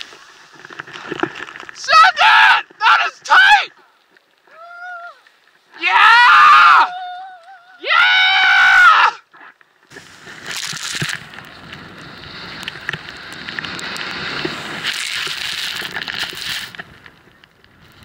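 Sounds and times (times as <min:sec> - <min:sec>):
person yelling: 0:01.8 - 0:03.8, 0:04.5 - 0:05.2, 0:05.8 - 0:09.2
wind and snow rushing: 0:09.9 - 0:18.0.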